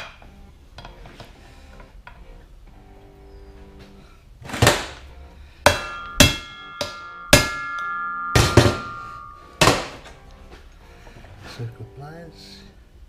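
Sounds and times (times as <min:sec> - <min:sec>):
steel shaft ringing: 0:05.6 - 0:10.5
hammer blows on steel: 0:05.7 - 0:10.2.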